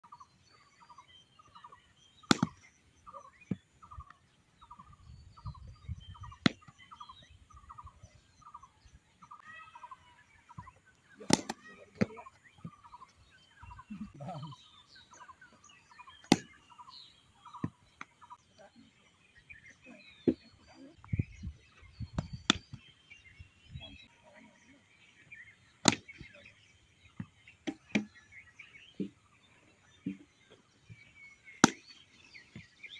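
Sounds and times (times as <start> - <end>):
birds chirping: 0.0 - 32.9
cricket bat knocks: 2.3 - 2.6, 11.2 - 12.2, 16.2 - 16.6, 25.8 - 26.2, 31.6 - 31.9.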